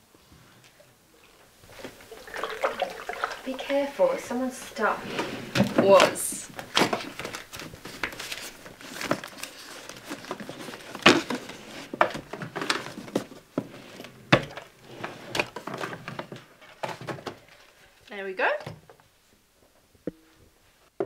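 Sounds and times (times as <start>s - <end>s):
paper rustling and crinkling: 5.0s - 17.9s.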